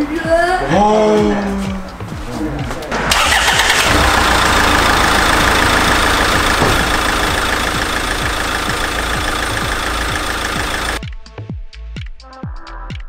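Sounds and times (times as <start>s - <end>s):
diesel car engine idling: 3.1s - 11.0s.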